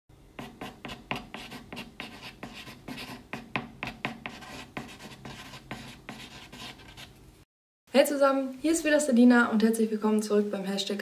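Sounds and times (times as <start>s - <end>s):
chalk scratching on blackboard: 0.4s - 7.2s.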